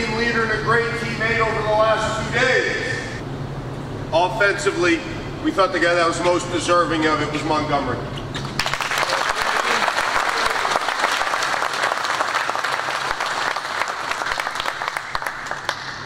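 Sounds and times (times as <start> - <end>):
crowd applauding: 8.6 - 16.0.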